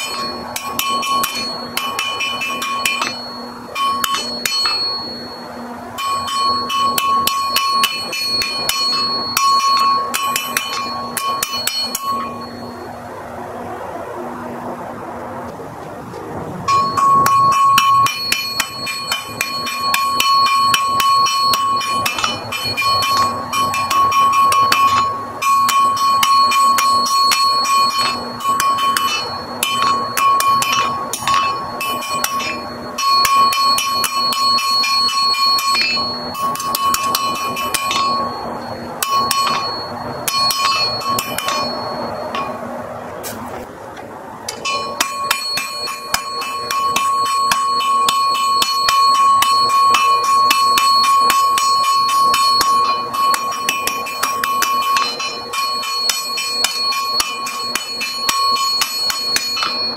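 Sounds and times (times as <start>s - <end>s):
hammer striking iron on anvil: 0.0s - 12.9s, 16.7s - 43.6s, 44.5s - 59.9s
anvil ringing: 0.0s - 13.0s, 16.7s - 43.5s, 44.5s - 59.9s.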